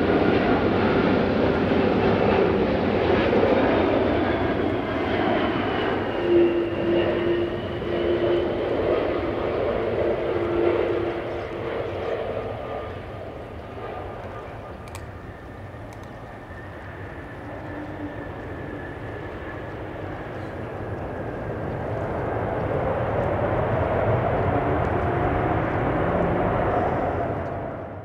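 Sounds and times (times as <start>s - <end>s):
jet engines rumbling: 0.0s - 28.0s.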